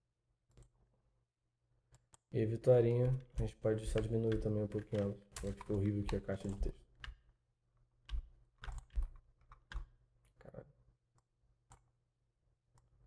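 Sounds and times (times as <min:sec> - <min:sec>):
keyboard and mouse clicks: 0:00.5 - 0:00.8, 0:02.9 - 0:07.3, 0:08.0 - 0:10.4, 0:11.2 - 0:11.9.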